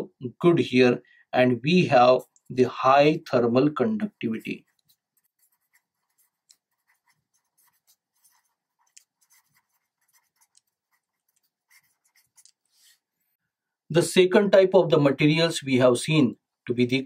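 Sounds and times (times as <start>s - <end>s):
pen scratching on paper: 4.0s - 13.4s.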